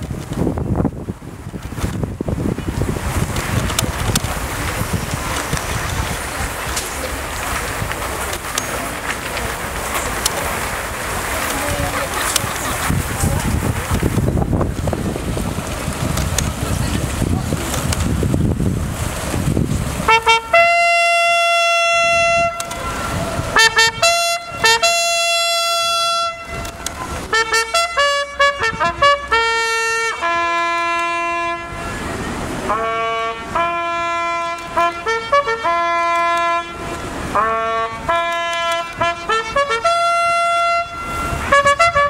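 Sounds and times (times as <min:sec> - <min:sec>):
bugle call: 0:20.1 - 0:32.1, 0:32.7 - 0:42.0.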